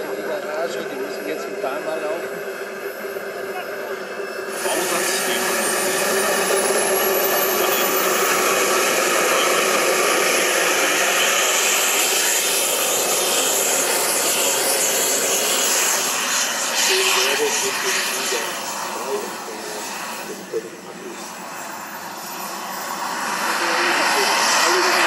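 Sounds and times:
jet turbine whine: 0:00.0 - 0:25.0
loud jet hiss: 0:04.5 - 0:20.7.

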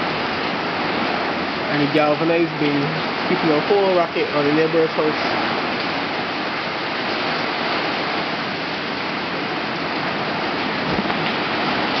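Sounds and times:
wind driving heavy rain: 0:00.0 - 0:12.0
dull low thump: 0:10.8 - 0:11.8.

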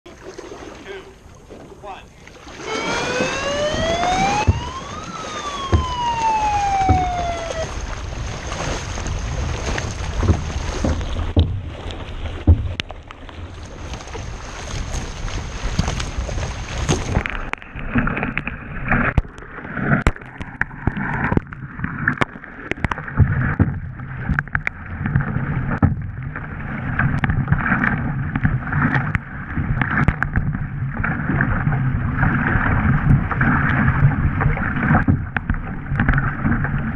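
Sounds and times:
paddle blades splashing: 0:00.1 - 0:36.9
water rushing past hulls: 0:00.1 - 0:36.9
siren wailing: 0:02.5 - 0:08.0
wind noise on microphone: 0:02.5 - 0:36.9.

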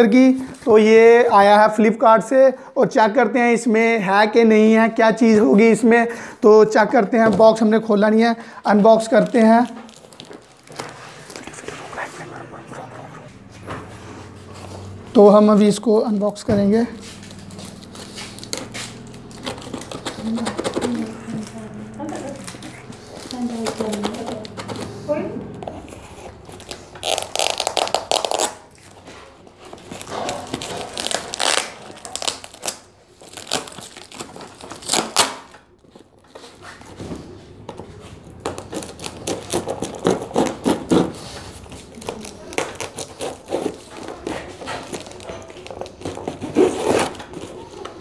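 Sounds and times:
plastic crinkling and rustling: 0:07.1 - 0:25.0, 0:25.6 - 0:48.0
packing tape tearing: 0:08.9 - 0:12.0, 0:16.7 - 0:24.9, 0:25.7 - 0:37.0, 0:38.2 - 0:48.0.

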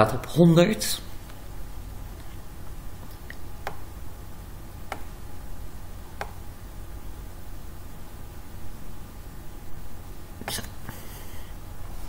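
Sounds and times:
low steady hum: 0:00.0 - 0:12.0
computer mouse clicks: 0:04.9 - 0:05.1, 0:06.2 - 0:06.4.

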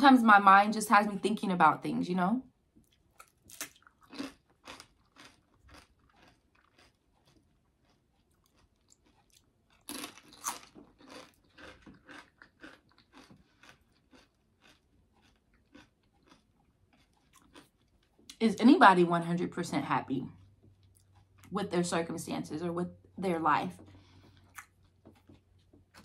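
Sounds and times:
person chewing crunchy food: 0:02.8 - 0:18.4, 0:20.3 - 0:21.5, 0:23.8 - 0:26.0.

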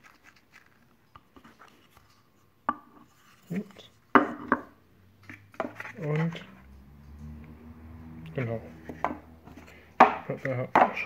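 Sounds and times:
sharp wooden knock: 0:10.0 - 0:11.0.

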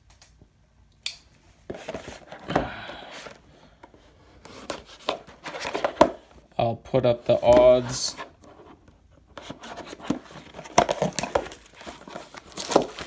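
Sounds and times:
crinkling scraping plastic wrap: 0:09.5 - 0:13.0.

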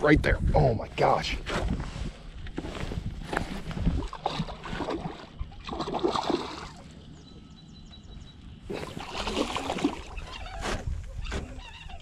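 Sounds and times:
fish splashing at the surface: 0:04.1 - 0:06.8, 0:08.8 - 0:10.2.

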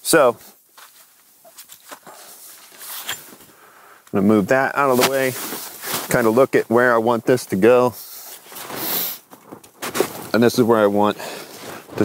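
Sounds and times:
rustling in snow: 0:04.8 - 0:06.5.

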